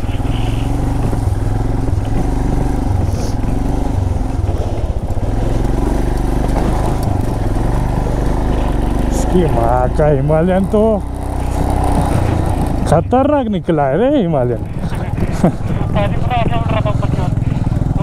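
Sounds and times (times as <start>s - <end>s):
bike knocks and rattles: 0.0s - 9.2s
motorcycle engine running: 0.0s - 18.0s.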